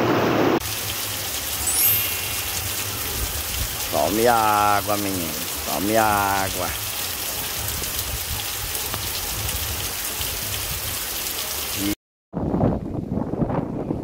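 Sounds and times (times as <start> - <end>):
heavy rain pouring: 0.1 - 12.0
wind buffeting microphone: 12.4 - 14.0.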